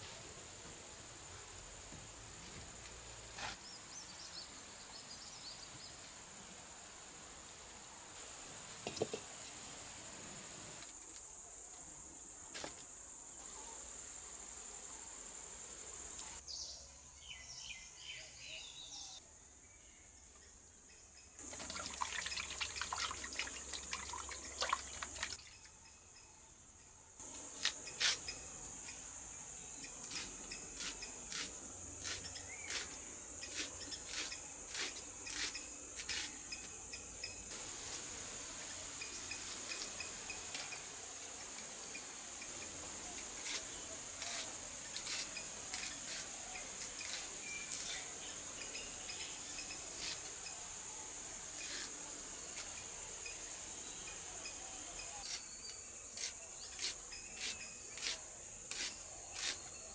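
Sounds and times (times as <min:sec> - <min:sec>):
knife slicing onions: 0:30.0 - 0:36.3, 0:56.2 - 0:59.6.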